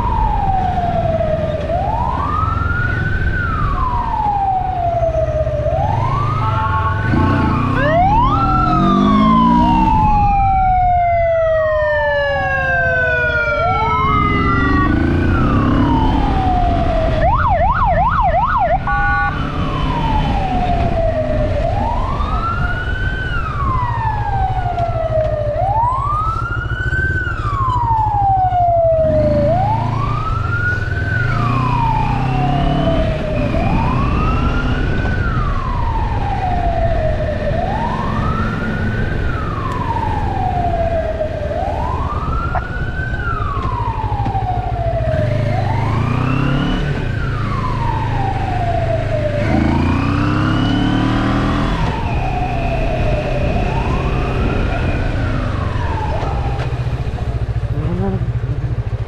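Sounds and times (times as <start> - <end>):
electronic siren wailing: 0.0 - 58.2
motorcycle engine revving: 5.9 - 10.5, 13.0 - 17.3, 28.7 - 59.0.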